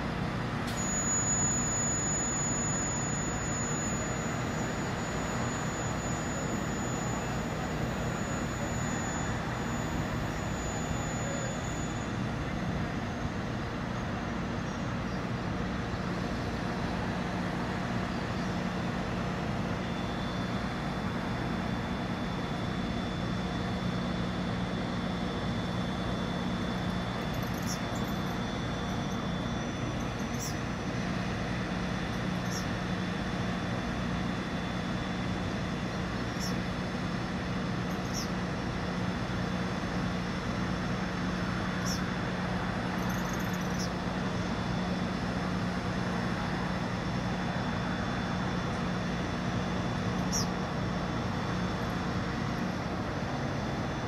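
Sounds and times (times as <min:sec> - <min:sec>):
crane engine droning: 0:00.0 - 0:54.0
short high chirps: 0:00.7 - 0:12.1.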